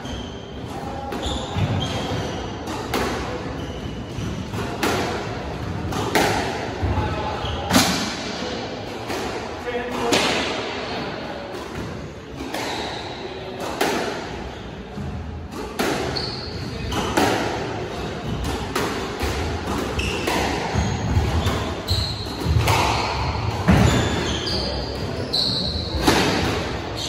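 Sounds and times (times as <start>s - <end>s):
shoes squeaking on wooden floor: 16.0s - 17.0s, 23.7s - 26.1s.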